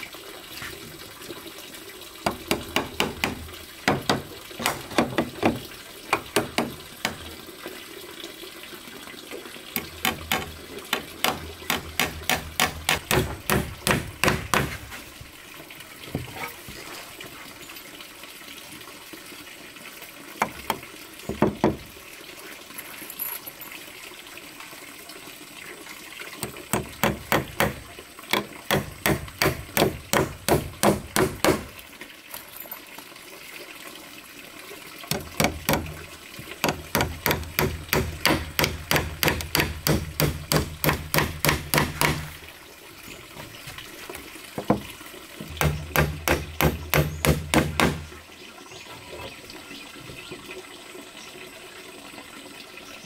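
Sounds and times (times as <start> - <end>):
hammering on wood: 2.2 - 7.3, 9.8 - 14.8, 20.4 - 21.8, 26.4 - 31.7, 35.1 - 36.0, 36.6 - 42.4, 44.6 - 48.1.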